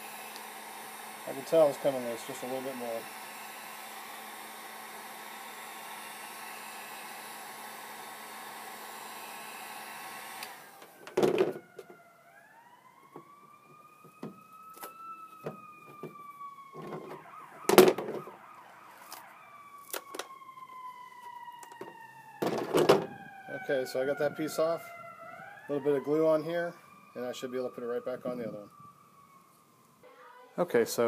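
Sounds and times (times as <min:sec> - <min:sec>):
heat gun blowing: 0:00.0 - 0:11.9, 0:13.9 - 0:19.2
distant siren wailing: 0:00.0 - 0:31.0.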